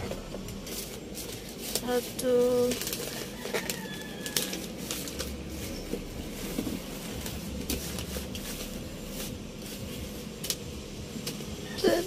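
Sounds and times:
paper wrapping crinkling: 0:00.1 - 0:10.6
small clicks and crackles: 0:00.8 - 0:05.4.

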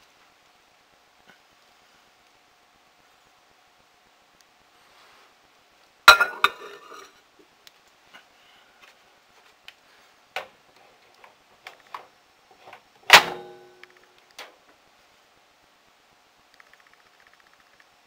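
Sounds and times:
mug clinking on glass: 0:06.1 - 0:07.1.

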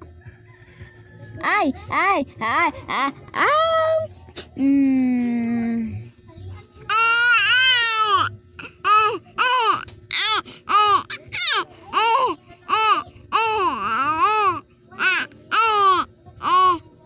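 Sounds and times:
baby cooing: 0:06.9 - 0:16.8.

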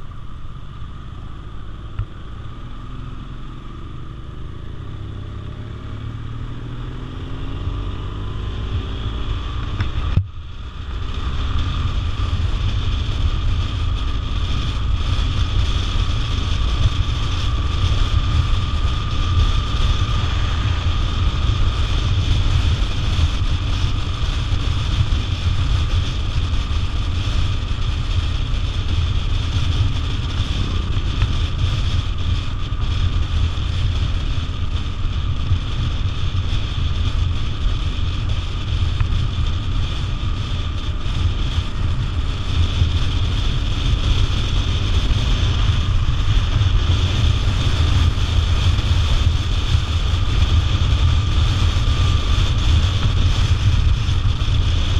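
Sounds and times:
motorcycle engine low rumble: 0:00.0 - 0:54.9
wind rush on microphone: 0:00.0 - 0:54.9.

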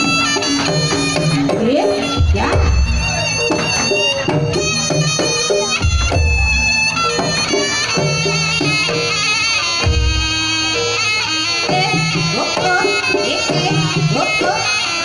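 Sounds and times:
hand drumming: 0:00.0 - 0:08.4
tuned percussion notes: 0:00.0 - 0:09.1
shawm melody: 0:00.0 - 0:15.0.

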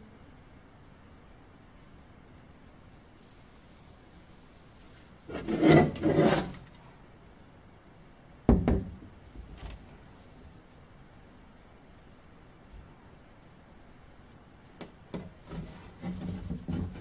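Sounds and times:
metal helmet scraping on workbench: 0:05.2 - 0:06.8, 0:15.4 - 0:17.0.

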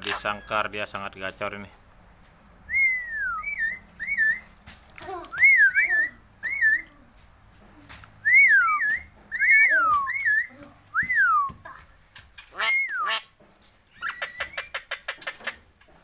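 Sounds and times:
myna whistling: 0:02.7 - 0:04.5, 0:05.4 - 0:07.0, 0:08.2 - 0:11.6, 0:12.6 - 0:13.3, 0:13.9 - 0:14.9.

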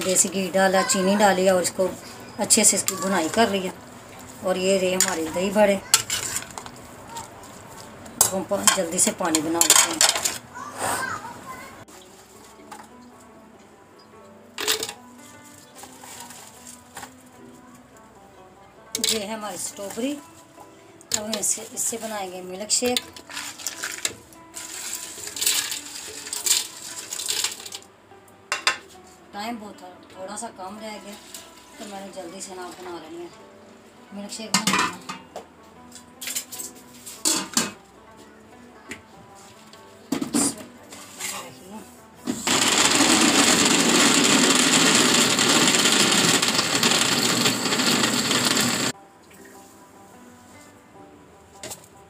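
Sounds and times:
dry ingredients hissing pour: 0:23.3 - 0:27.8, 0:42.4 - 0:48.9
blender running: 0:42.4 - 0:48.9.

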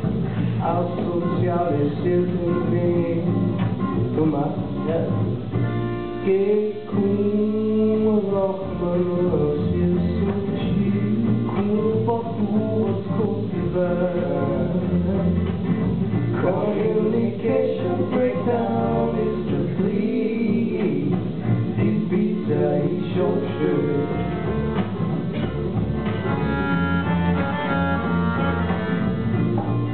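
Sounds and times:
man singing: 0:00.0 - 0:05.3, 0:06.2 - 0:15.7, 0:16.3 - 0:24.5
acoustic guitar: 0:00.0 - 0:29.9
double bass: 0:00.0 - 0:29.9.

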